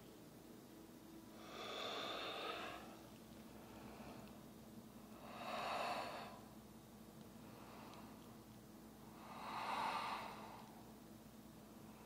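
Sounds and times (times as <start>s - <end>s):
woman breathing: 1.3s - 6.6s, 7.3s - 8.4s, 9.0s - 11.0s.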